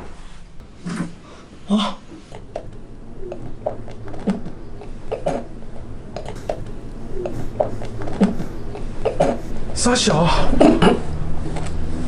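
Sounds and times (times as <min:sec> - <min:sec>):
low steady hum: 0:00.0 - 0:12.0
person choking and gasping: 0:01.6 - 0:02.2, 0:07.2 - 0:09.5.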